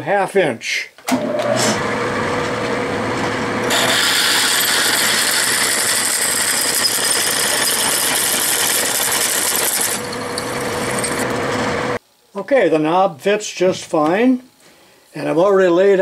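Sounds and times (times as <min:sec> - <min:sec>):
lathe humming: 0:01.2 - 0:12.0
drill hissing cutting metal: 0:03.6 - 0:12.0.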